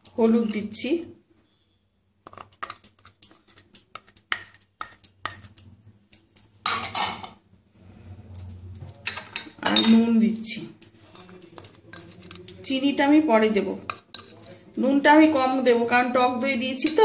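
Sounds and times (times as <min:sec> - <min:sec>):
spoon scraping glass: 0:02.3 - 0:05.8, 0:08.3 - 0:12.8, 0:13.8 - 0:14.6
spoon clinking on glass bowl: 0:10.8 - 0:12.4.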